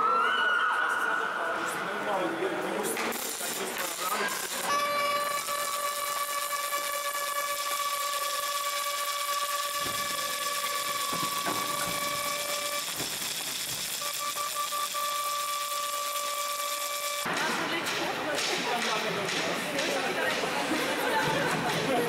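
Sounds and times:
mechanical whine: 3.0 - 17.3
hiss: 7.5 - 17.2.

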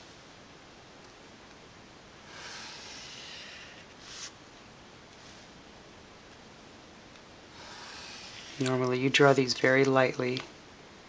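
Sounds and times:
felt-tip marker on paper: 7.6 - 9.5.

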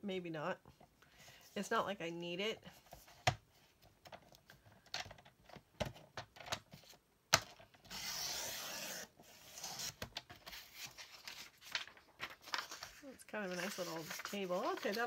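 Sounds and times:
blade scraping through paper: 12.4 - 15.0.

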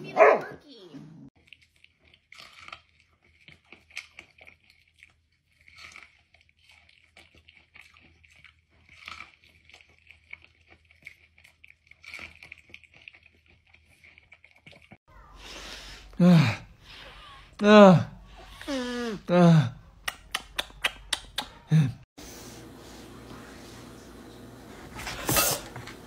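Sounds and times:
crunching corn on the cob: 1.4 - 15.0.

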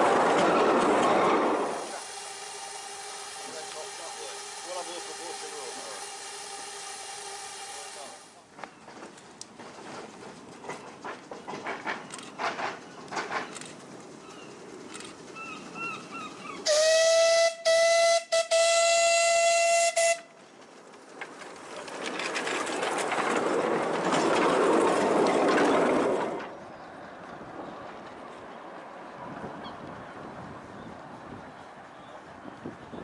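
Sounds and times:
train passing with rush of steam: 0.0 - 33.0
steam locomotive whistle: 1.6 - 8.3, 16.7 - 20.3.

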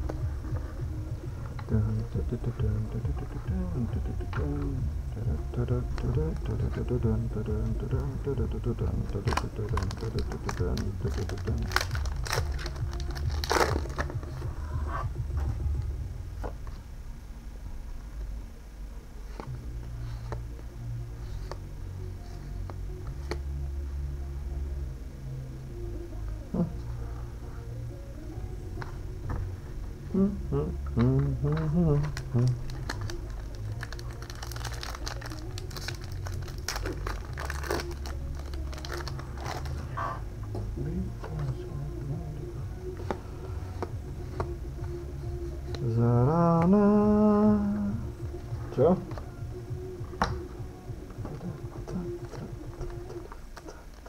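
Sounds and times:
low steady hum: 0.0 - 54.0
foil pack tearing and crinkling: 9.1 - 14.2, 32.1 - 39.8.

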